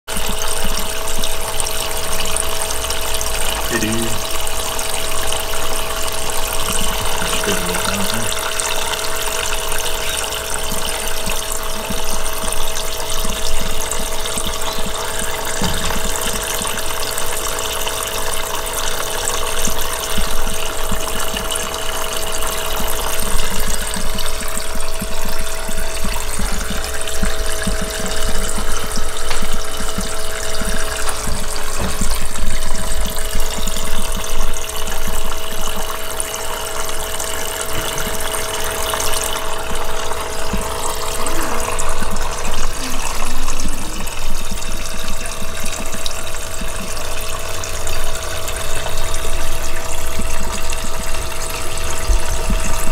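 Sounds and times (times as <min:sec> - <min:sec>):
small electric pump humming: 0:00.1 - 0:52.9
thin water stream splashing: 0:00.1 - 0:52.9.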